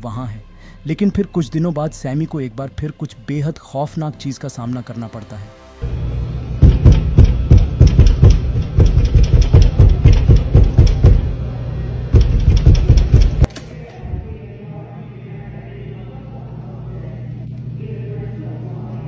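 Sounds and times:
rapid pounding on a door: 0:06.6 - 0:11.3, 0:12.1 - 0:13.5.

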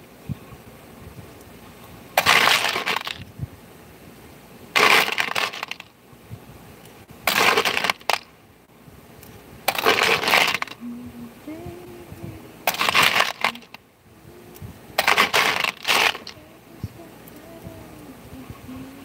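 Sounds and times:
metal parts clattering in plastic bin: 0:09.7 - 0:10.8, 0:15.0 - 0:16.3.

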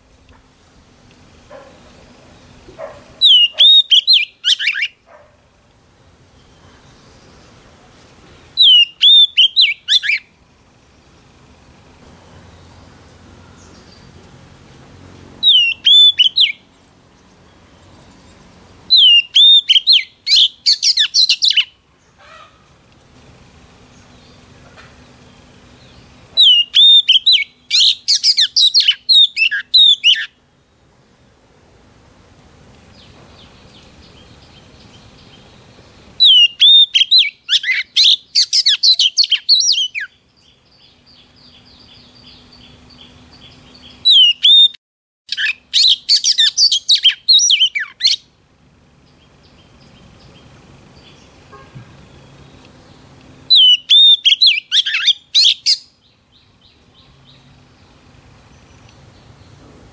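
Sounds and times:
bird singing whistled notes: 0:02.9 - 0:05.0, 0:08.4 - 0:10.4, 0:15.4 - 0:16.8, 0:17.9 - 0:21.8, 0:25.3 - 0:30.4, 0:33.0 - 0:48.3, 0:49.0 - 0:59.6.

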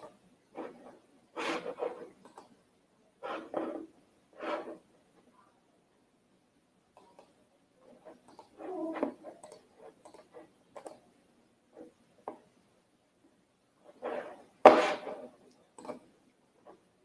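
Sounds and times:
keyboard and mouse clicks: 0:02.2 - 0:02.6, 0:07.0 - 0:07.4, 0:08.1 - 0:11.0, 0:15.8 - 0:16.1.

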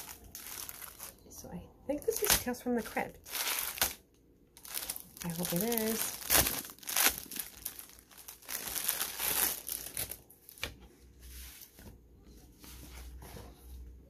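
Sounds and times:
plastic wrapping crinkling: 0:00.0 - 0:01.2, 0:02.0 - 0:10.7.

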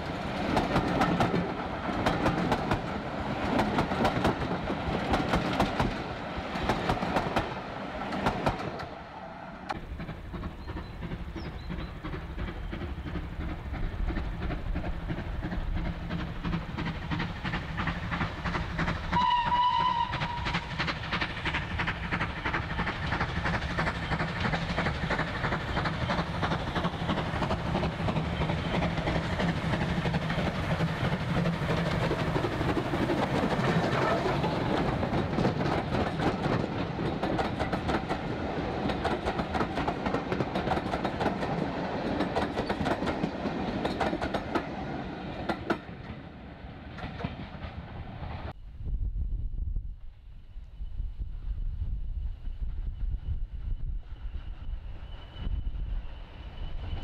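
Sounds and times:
steam locomotive rumble: 0:00.0 - 0:57.0
train wheels clattering over rail joints: 0:00.1 - 0:09.0, 0:09.7 - 0:46.2
steam whistle: 0:19.1 - 0:20.7.

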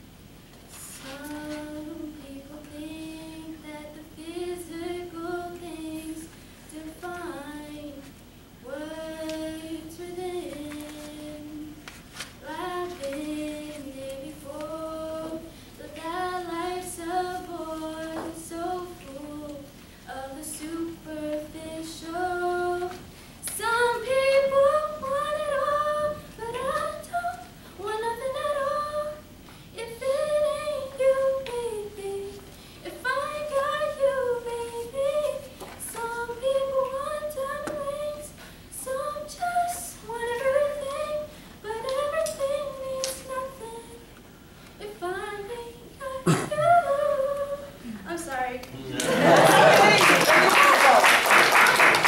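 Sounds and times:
girl singing a cappella: 0:00.7 - 0:48.7
short breaths: 0:38.4 - 0:38.7.

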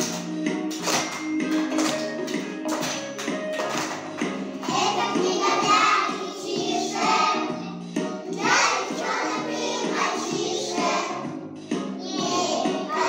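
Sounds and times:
recorded musical accompaniment: 0:00.0 - 0:13.0
children singing together: 0:04.6 - 0:13.0.

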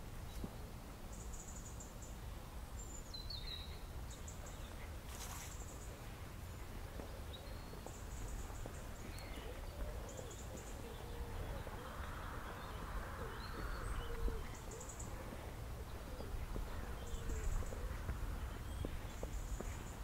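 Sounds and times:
birds chirping and trilling: 0:06.7 - 0:20.0
low cooing calls: 0:07.0 - 0:20.0.

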